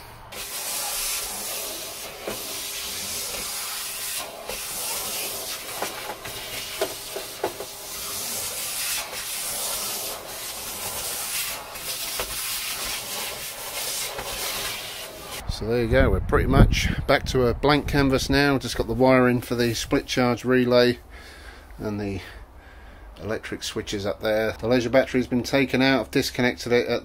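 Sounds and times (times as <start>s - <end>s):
debris rattling up hose: 0.0s - 15.4s
nozzle dragged over steel floor: 0.0s - 15.4s
vacuum cleaner running: 0.0s - 15.4s.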